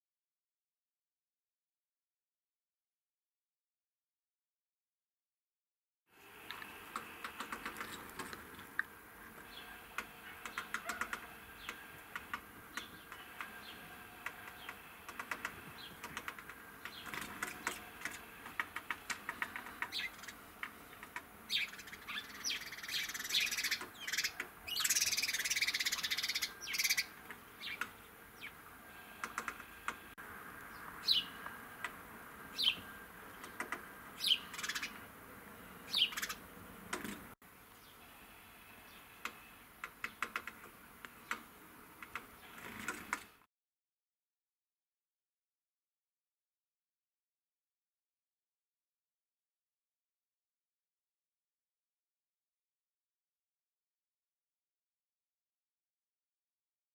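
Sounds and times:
wings fluttering against pipe: 14.2 - 21.3
sparrow chirps: 19.8 - 20.4, 21.5 - 27.8, 30.7 - 31.4, 32.5 - 33.6, 34.2 - 35.0, 35.8 - 36.4.

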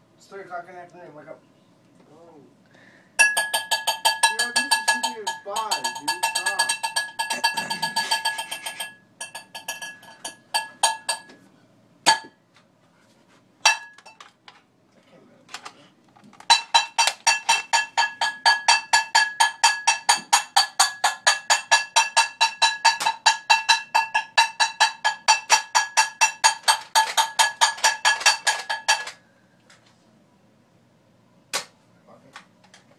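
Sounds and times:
metal pot banging: 3.2 - 11.4, 12.1 - 12.4, 13.6 - 14.2, 16.5 - 29.2.

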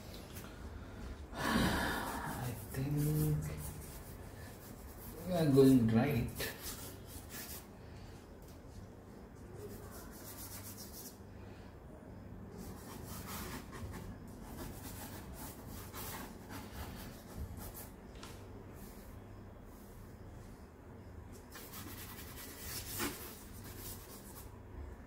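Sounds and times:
charcoal rubbing on paper: 2.0 - 7.7, 9.6 - 11.2, 12.6 - 17.9, 21.5 - 24.5.

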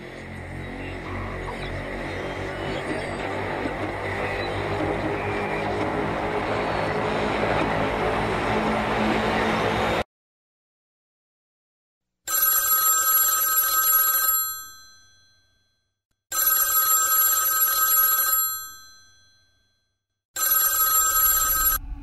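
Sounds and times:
telephone bell ringing: 12.3 - 15.7, 16.3 - 19.8, 20.4 - 21.8.

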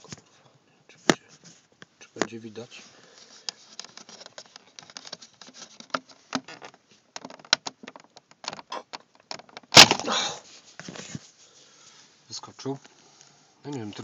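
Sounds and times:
plastic clicks and creaks: 3.2 - 9.8.

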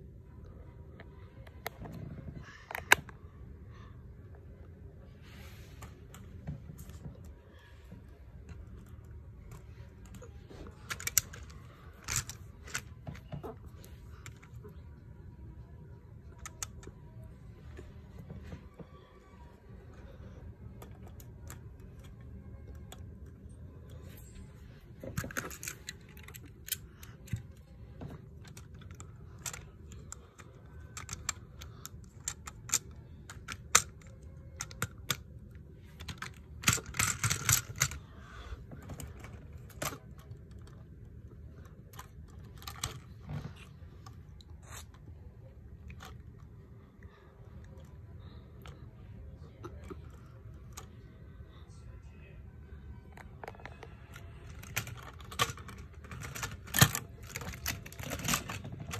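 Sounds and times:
plastic bricks clicking: 9.5 - 14.6, 28.3 - 38.0.

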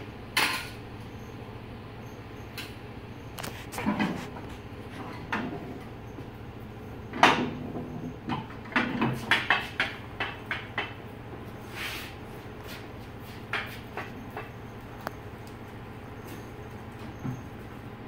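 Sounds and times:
hand truck knocking and rattling: 7.1 - 11.4, 13.4 - 15.1.

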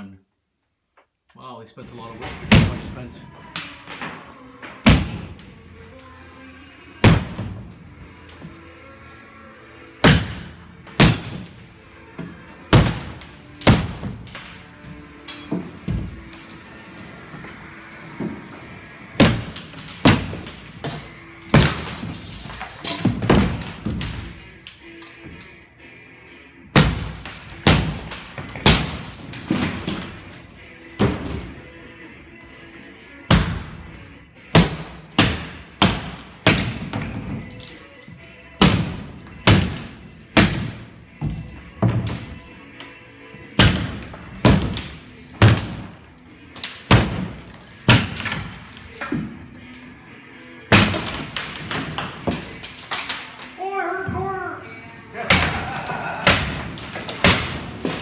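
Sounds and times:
faint music: 1.2 - 58.0
demolition thuds and crashes: 10.0 - 11.6, 12.2 - 14.6, 15.4 - 16.5, 17.4 - 24.5, 26.8 - 31.6, 38.6 - 42.4, 43.6 - 49.4, 50.7 - 53.4, 55.2 - 58.0
heavy demolition thuds: 17.6 - 24.5.

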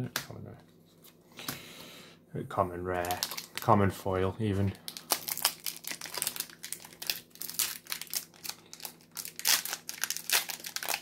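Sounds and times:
foil wrappers crinkling: 2.9 - 3.8, 4.7 - 11.0.

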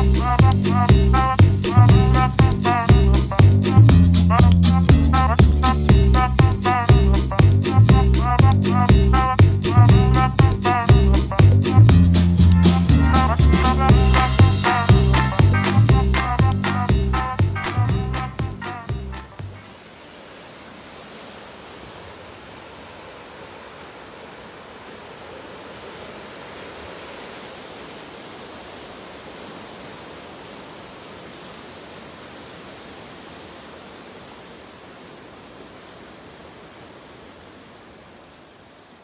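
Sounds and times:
waves breaking over rocks: 19.6 - 39.0.

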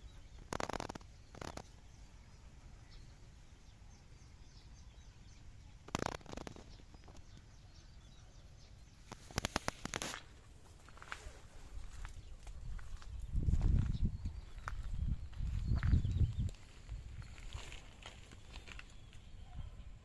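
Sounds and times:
crackling rustle: 0.0 - 2.2, 5.8 - 7.6, 8.7 - 19.4
faint bird chirps: 0.0 - 10.2, 10.9 - 20.0.

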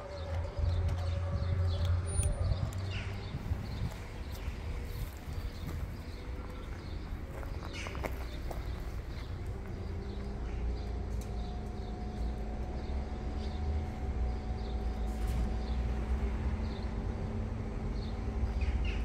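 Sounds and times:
low rumble and hum: 0.0 - 19.0.

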